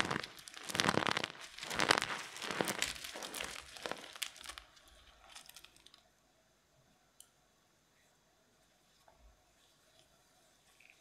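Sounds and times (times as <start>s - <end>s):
fingers crushing eggshell: 0.0s - 6.0s.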